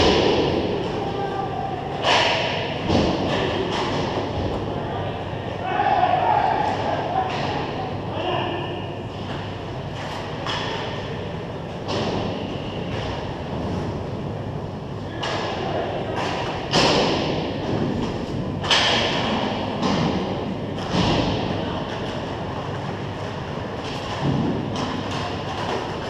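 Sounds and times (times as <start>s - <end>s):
hockey stick hitting puck: 0.0s - 0.8s, 2.0s - 4.6s, 15.2s - 22.1s, 23.8s - 26.0s
rumble of hockey play: 0.0s - 26.0s.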